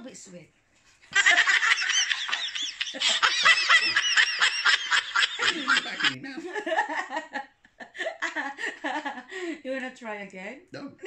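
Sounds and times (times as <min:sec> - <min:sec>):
high-pitched laughter: 0:01.2 - 0:06.2.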